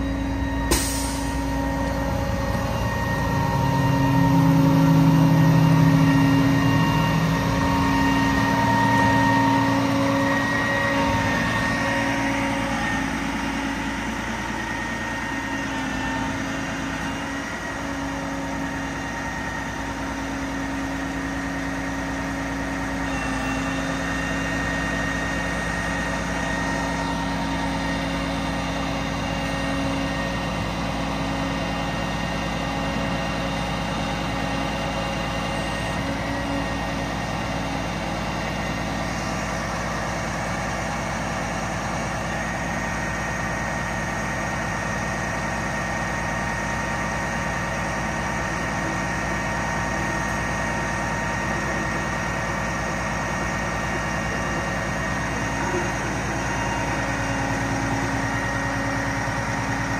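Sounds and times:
hydraulic boom held tones: 0.0 - 28.2
diesel engine drone: 0.0 - 59.9.

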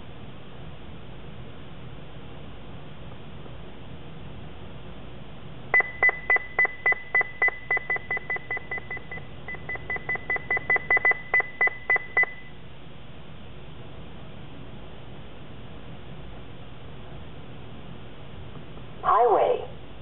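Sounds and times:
radar detector short high beeps: 5.8 - 12.5.

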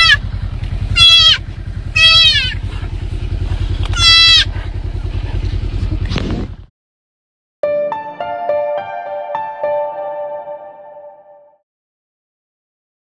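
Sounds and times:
baby deer bleating: 0.0 - 0.2, 0.9 - 2.7, 3.8 - 4.5
low engine-like drone: 0.0 - 6.4.

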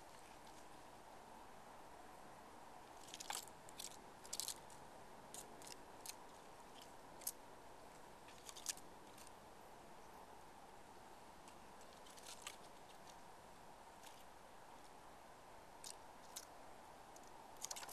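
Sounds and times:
low steady hiss: 0.0 - 17.9
flying squirrel clicking: 2.9 - 7.4, 8.0 - 9.4, 15.8 - 17.9.

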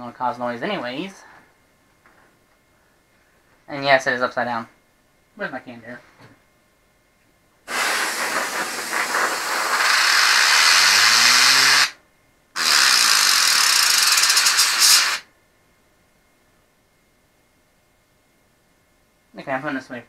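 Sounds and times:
compressed air spraying: 7.7 - 12.0, 12.6 - 15.2.

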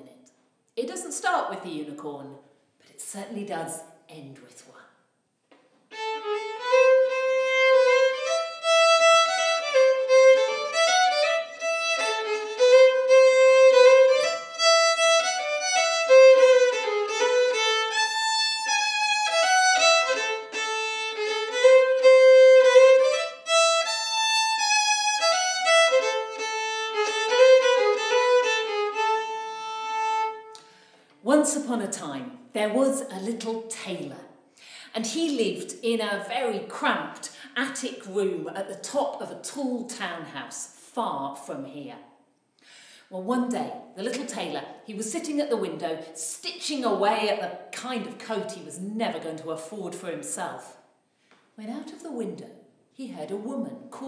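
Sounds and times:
solo violin melody: 5.9 - 31.2.

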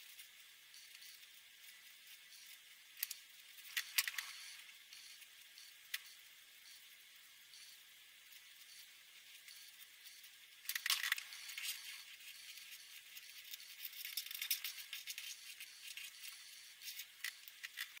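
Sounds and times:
marker pen scratching on paper: 11.1 - 18.0.

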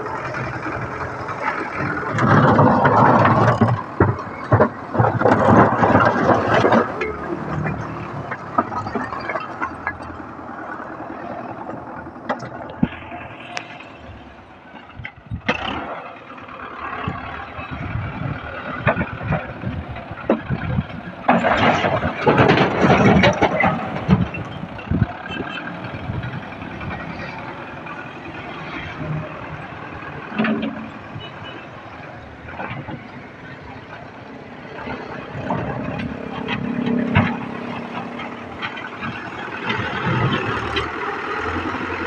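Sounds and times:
tractor engine running: 0.0 - 42.0
bricks clattering and crashing: 1.5 - 14.0, 18.2 - 25.6.

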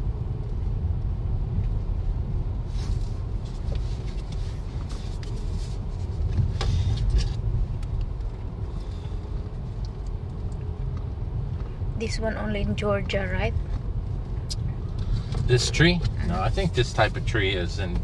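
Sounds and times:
car driving on dirt road: 0.0 - 18.0
light rattles and crackles: 0.2 - 18.0.

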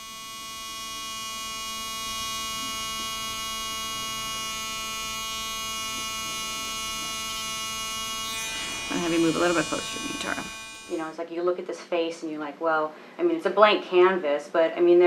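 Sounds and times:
tattoo pen buzzing: 0.0 - 11.1.

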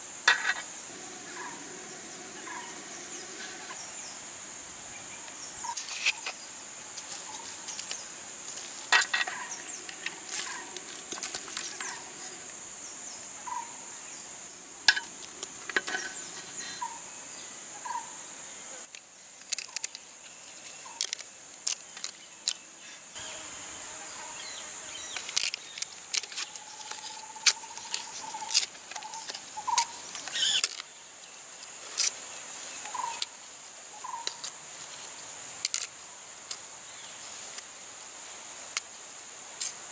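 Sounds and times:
high drone of insects: 0.0 - 39.9
leaves tearing: 25.0 - 30.9.

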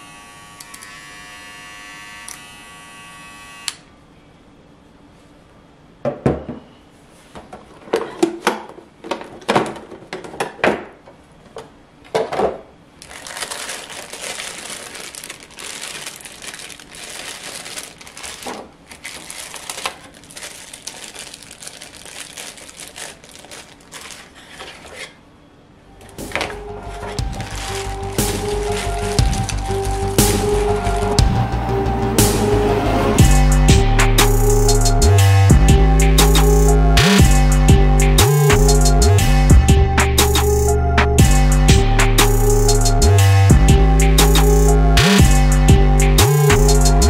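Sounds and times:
plastic bag crinkling: 13.0 - 25.2, 26.4 - 31.2.

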